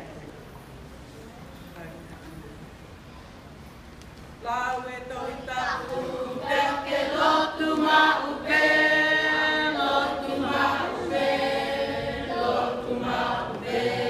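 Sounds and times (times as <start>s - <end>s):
children singing in unison: 5.7s - 14.0s.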